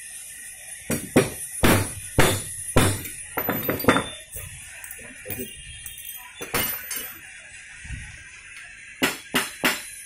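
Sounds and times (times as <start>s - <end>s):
metal tools clinking: 3.0s - 7.2s.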